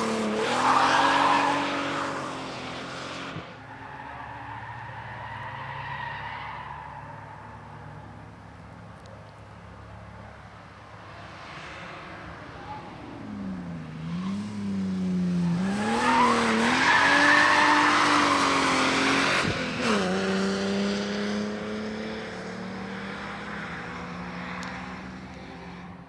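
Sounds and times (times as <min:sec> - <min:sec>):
car engine revving: 0:13.0 - 0:25.7.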